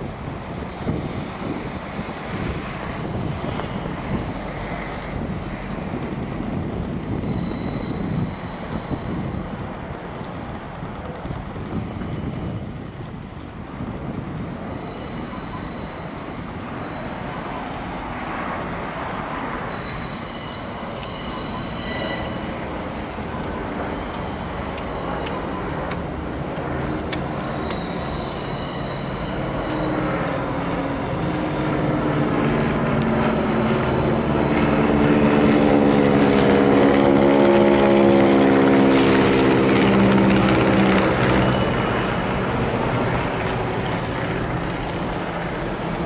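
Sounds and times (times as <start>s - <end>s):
wind buffeting microphone: 0.0s - 16.9s
propeller planes droning overhead: 0.0s - 46.0s.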